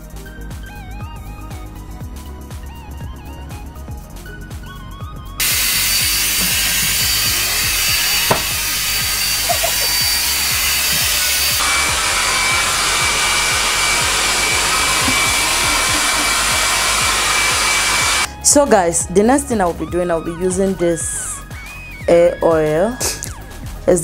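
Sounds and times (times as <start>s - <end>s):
hair dryer blowing: 5.4s - 18.3s
thin whine: 5.4s - 18.4s
hair dryer switch click: 8.2s - 8.7s.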